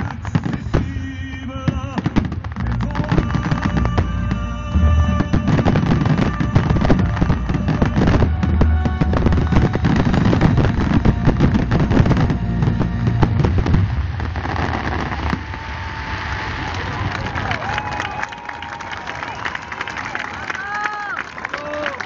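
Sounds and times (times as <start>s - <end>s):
fireworks bursting: 0.0s - 17.8s
deep rumble: 0.6s - 17.7s
crowd cheering and applause: 3.0s - 22.0s.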